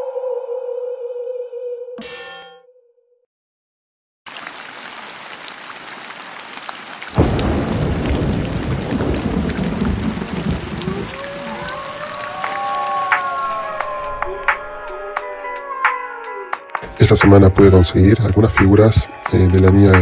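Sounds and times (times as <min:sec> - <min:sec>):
steady rain: 0:04.3 - 0:14.2
thunderclap and rumble: 0:07.2 - 0:11.9.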